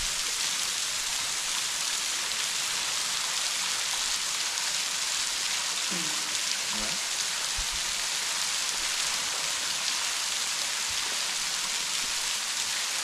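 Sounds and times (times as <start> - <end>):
waterfall splashing onto ground: 0.0 - 13.0.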